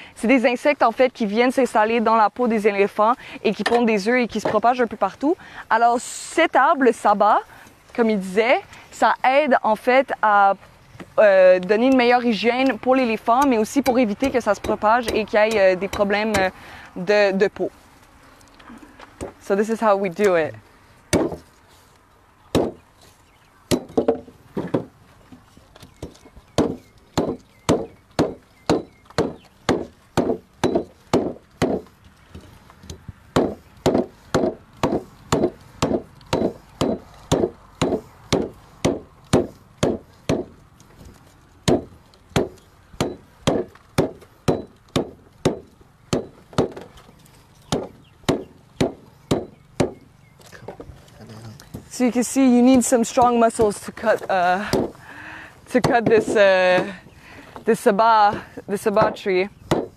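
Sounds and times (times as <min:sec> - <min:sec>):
machete chopping vine stem: 0:33.4 - 0:40.5.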